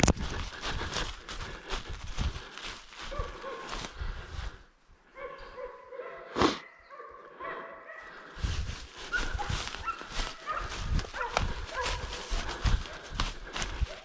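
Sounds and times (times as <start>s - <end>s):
footsteps crunching dry leaves: 0.0s - 4.6s, 8.2s - 14.0s
dogs barking and yelping: 3.1s - 3.9s, 5.1s - 8.4s, 9.0s - 14.0s.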